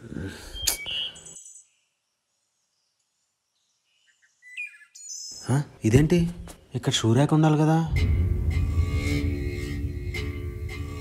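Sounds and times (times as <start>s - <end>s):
high bird-like chirps: 0.5s - 2.0s, 3.9s - 5.5s.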